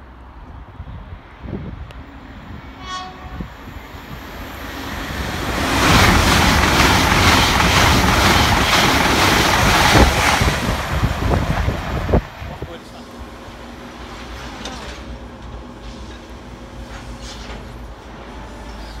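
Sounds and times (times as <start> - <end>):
train passing with rumble: 0.0 - 19.0
train horn blast: 2.8 - 3.7.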